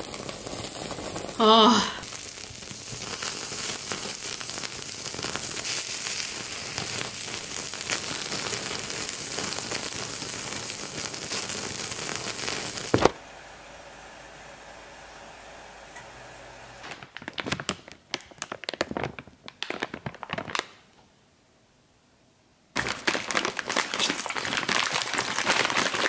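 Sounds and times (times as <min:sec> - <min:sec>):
meat sizzling on grill: 0:00.0 - 0:13.1.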